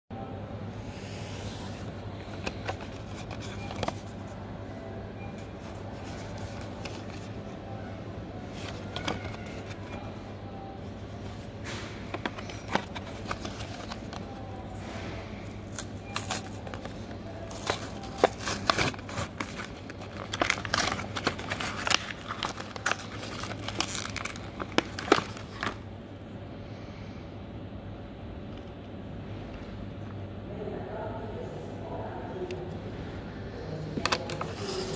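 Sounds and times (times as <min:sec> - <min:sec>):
steady low hum: 0:00.1 - 0:34.9
blister pack crinkling and tearing: 0:08.5 - 0:10.1, 0:12.1 - 0:25.8.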